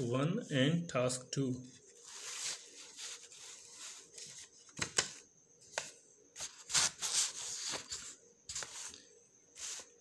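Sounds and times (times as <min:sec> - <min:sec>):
paper rustling: 0:01.9 - 0:05.2.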